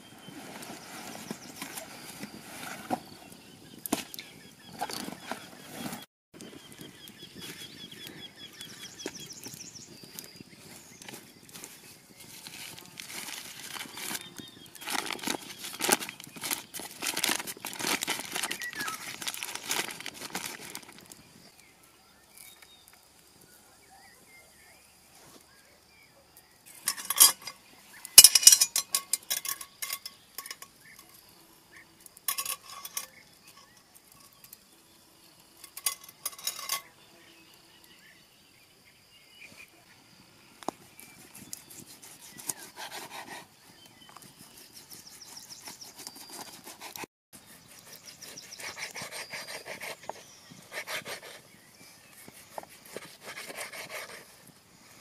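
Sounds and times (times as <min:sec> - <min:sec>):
paper crinkling: 0:11.1 - 0:21.2
metal pot clinking on chain: 0:26.8 - 0:27.6, 0:28.2 - 0:31.1, 0:32.3 - 0:34.4, 0:35.6 - 0:36.9.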